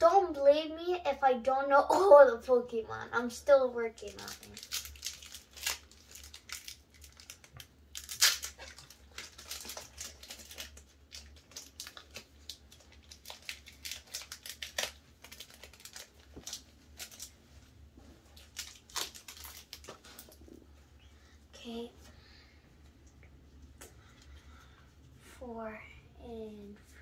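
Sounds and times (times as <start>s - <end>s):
foil wrapper crinkling and tearing: 4.0s - 17.4s, 18.3s - 20.4s.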